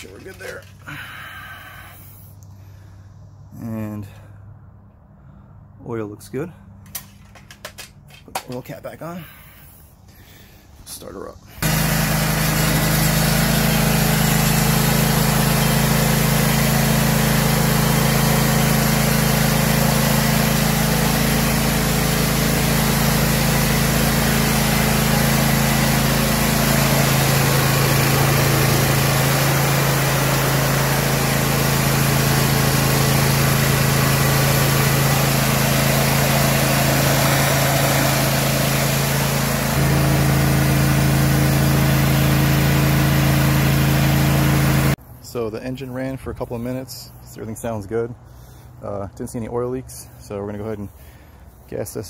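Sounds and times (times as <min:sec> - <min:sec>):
lawn tractor engine running: 0:00.0 - 0:02.1, 0:11.6 - 0:45.0.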